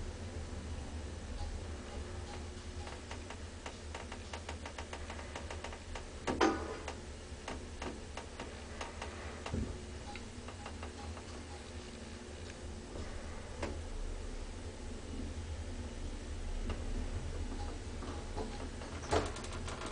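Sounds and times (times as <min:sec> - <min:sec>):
elevator hum: 0:00.0 - 0:19.9
elevator clatter: 0:01.9 - 0:13.9, 0:16.6 - 0:19.9.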